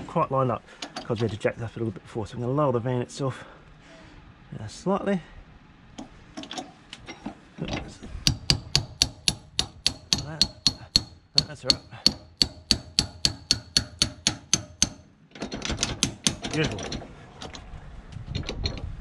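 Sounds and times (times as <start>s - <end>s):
knocks on metal: 8.2s - 16.8s
ratchet clicking metallic: 8.2s - 17.0s.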